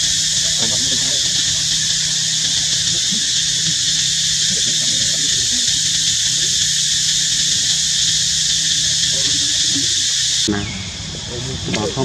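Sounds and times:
insect chorus drone: 0.0s - 12.0s
low hum: 0.0s - 12.0s.

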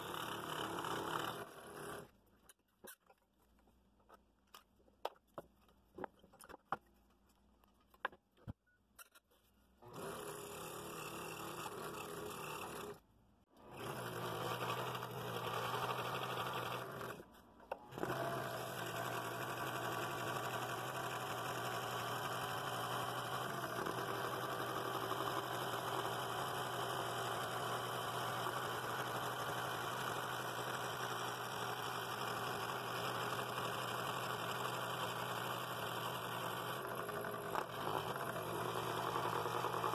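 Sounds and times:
scroll saw buzzing: 0.0s - 2.2s, 9.8s - 13.0s, 13.6s - 17.3s, 17.9s - 39.9s.

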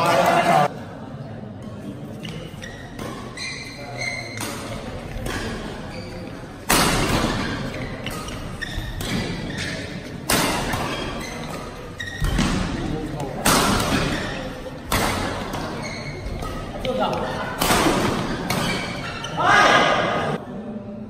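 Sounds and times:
shoes squeaking on court floor: 2.1s - 20.1s
rackets striking shuttlecock: 6.6s - 19.1s.

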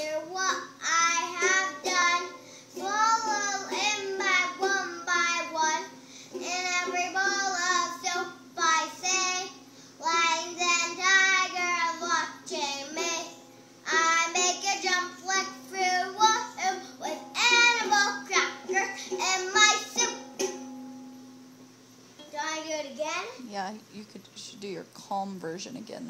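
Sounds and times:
girl singing: 0.0s - 20.7s.

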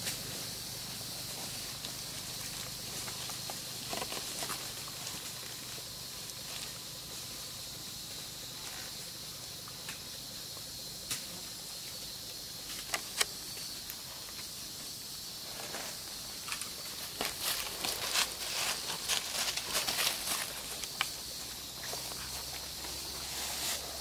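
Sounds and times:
high-pitched insect drone: 0.0s - 24.0s
dry leaves crackling: 16.9s - 24.0s.

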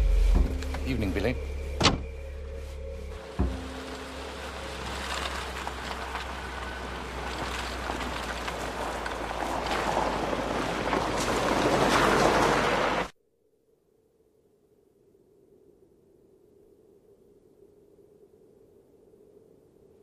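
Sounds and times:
low thump: 1.8s - 2.2s
car running: 3.1s - 13.1s.

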